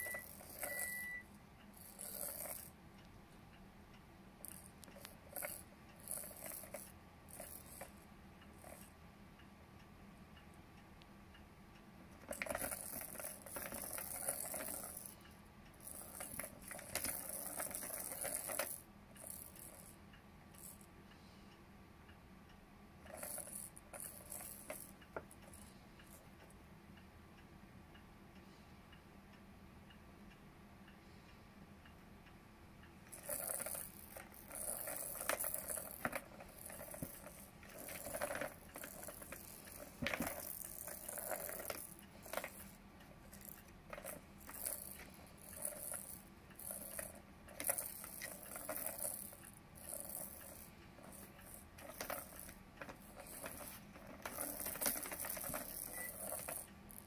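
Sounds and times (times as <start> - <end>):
plastic balls rolling and rattling: 12.2 - 15.2, 15.8 - 19.9, 33.1 - 57.0.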